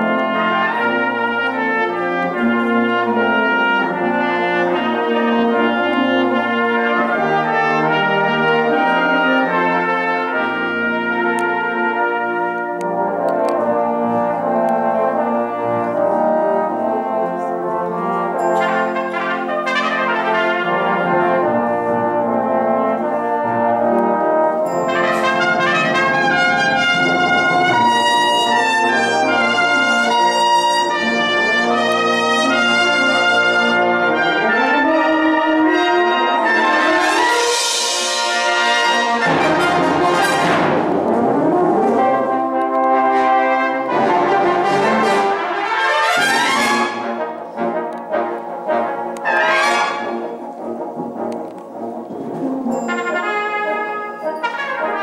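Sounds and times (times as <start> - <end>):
brass band playing: 0.0 - 55.0
solo cornet: 0.0 - 55.0.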